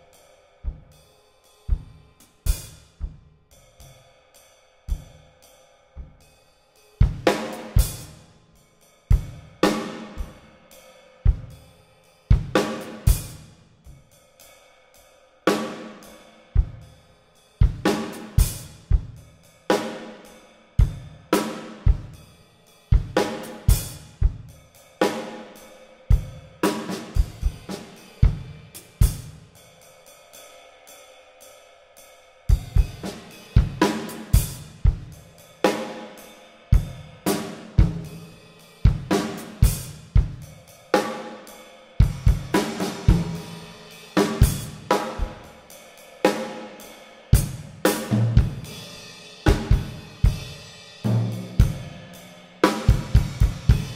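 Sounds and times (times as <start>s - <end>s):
drum kit playing: 7.0s - 8.2s, 9.1s - 10.5s, 12.3s - 13.4s, 15.5s - 16.9s, 17.6s - 22.3s, 22.9s - 29.5s, 32.5s - 53.9s.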